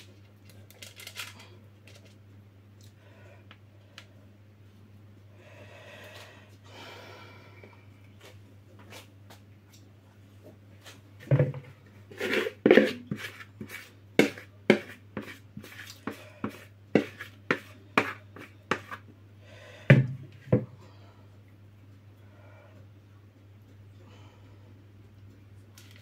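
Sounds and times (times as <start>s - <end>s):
steady low hum: 0.0s - 26.0s
spoon scraping and knocking bowl: 12.1s - 19.0s.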